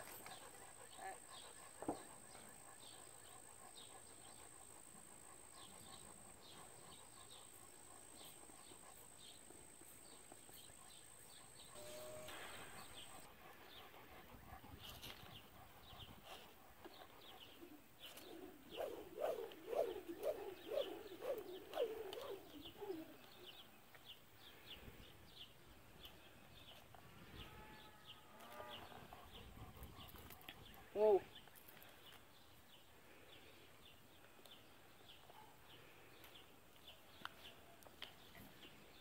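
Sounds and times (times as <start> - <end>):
small birds chirping: 0.0 - 26.9
dove cooing: 18.1 - 23.5.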